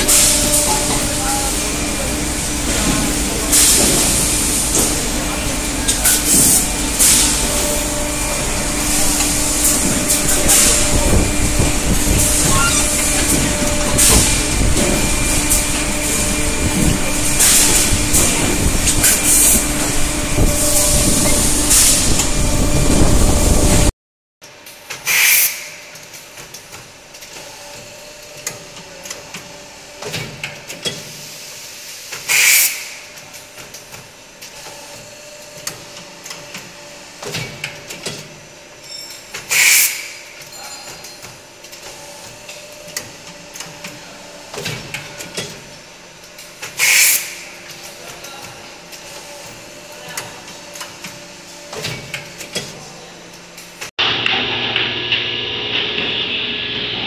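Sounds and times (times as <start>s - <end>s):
machine hum: 0.0s - 23.9s, 54.0s - 57.0s
air hisses: 25.1s - 25.8s, 31.2s - 33.2s, 39.5s - 40.2s, 46.8s - 47.5s.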